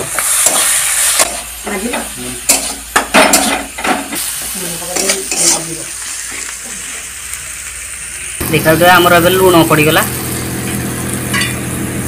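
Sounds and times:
metal spatula scraping a pan: 0.0s - 4.2s, 4.9s - 6.4s
oil sizzling: 0.0s - 12.0s.

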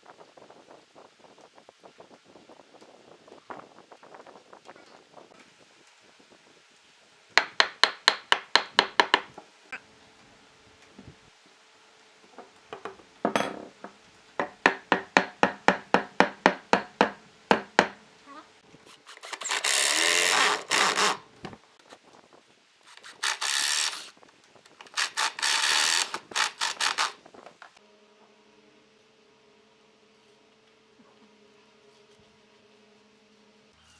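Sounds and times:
power drill boring wood: 19.1s - 21.2s, 22.9s - 24.2s, 24.8s - 27.2s.

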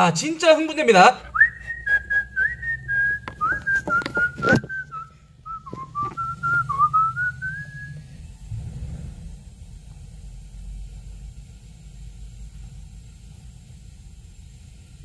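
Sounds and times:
person whistling a tune: 1.3s - 8.1s
handling clicks and knocks: 3.2s - 5.0s, 5.6s - 6.2s.

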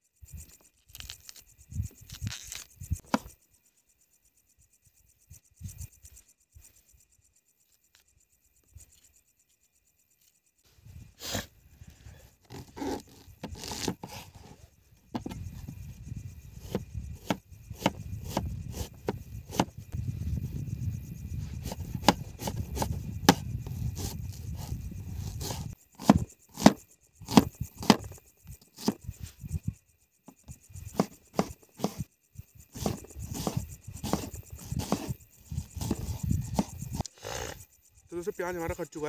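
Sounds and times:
onion skin scraping: 0.8s - 3.0s, 12.4s - 14.6s, 16.6s - 19.7s, 21.6s - 29.5s, 30.8s - 32.0s, 32.8s - 37.1s.

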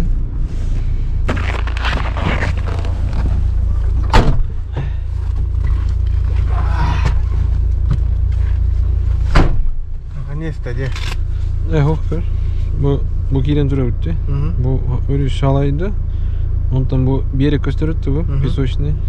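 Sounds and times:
vehicle low rumble: 0.0s - 19.0s
loud thumps: 1.2s - 5.1s, 9.2s - 10.1s.

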